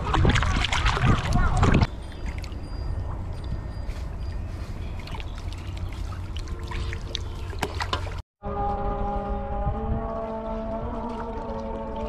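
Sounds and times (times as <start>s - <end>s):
pond water trickling and sloshing: 0.0s - 3.6s, 4.2s - 8.2s, 10.9s - 12.0s
water drips: 5.0s - 8.2s.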